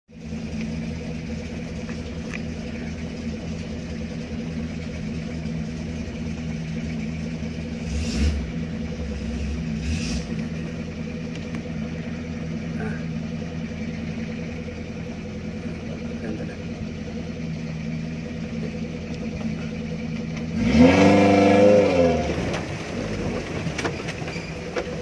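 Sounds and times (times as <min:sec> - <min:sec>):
vehicle engine running: 0:00.1 - 0:25.0.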